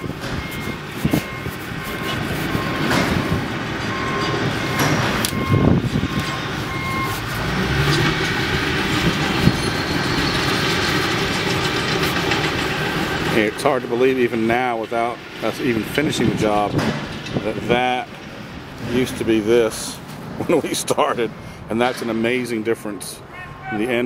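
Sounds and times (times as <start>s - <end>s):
reversing alarm beeping: 0.0s - 11.3s
heavy equipment rumbling: 0.0s - 22.4s.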